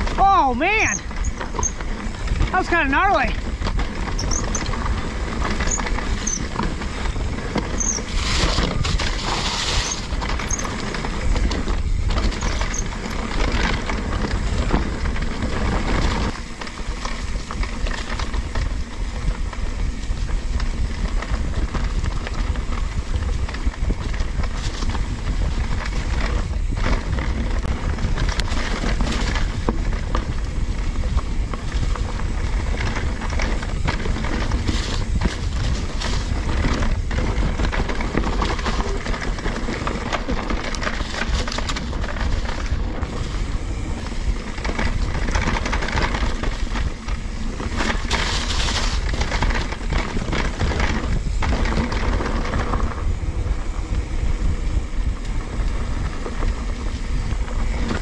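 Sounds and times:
bike rattling over bumps: 0.0 - 58.0
bike tyres on dirt and leaves: 0.0 - 58.0
wind rumble on microphone: 0.0 - 58.0
short high squeaks: 0.8 - 1.8, 4.1 - 4.7, 5.6 - 6.5, 7.8 - 8.5.

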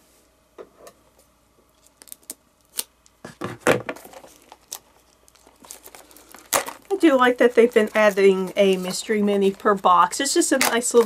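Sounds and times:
packaging clicks and rustles: 3.8 - 9.7.

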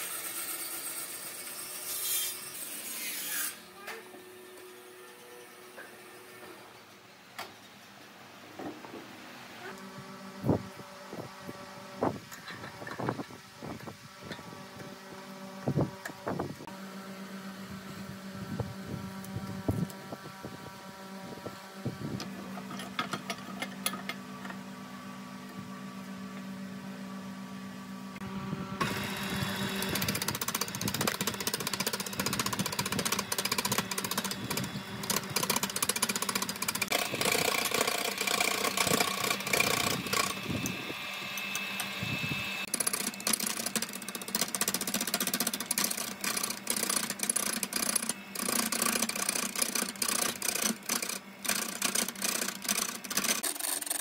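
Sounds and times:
lathe motor humming: 28.2 - 53.5
turning tool scraping wood: 29.6 - 40.7, 42.6 - 54.0.

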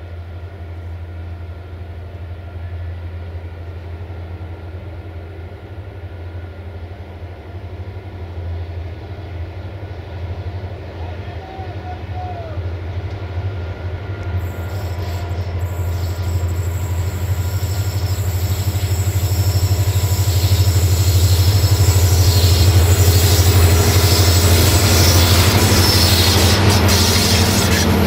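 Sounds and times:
locomotive engine drone: 0.0 - 28.0
wheel-on-rail hiss: 14.4 - 28.0.

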